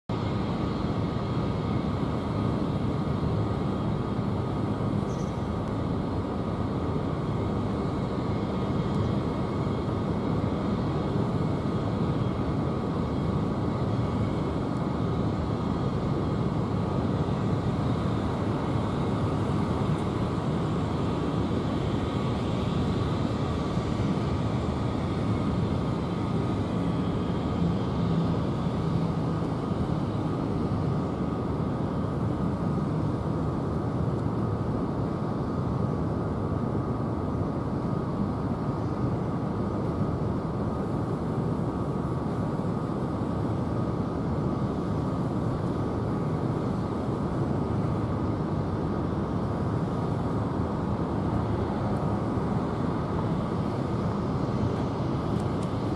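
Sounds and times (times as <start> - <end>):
jet engines idling: 0.1 - 55.9.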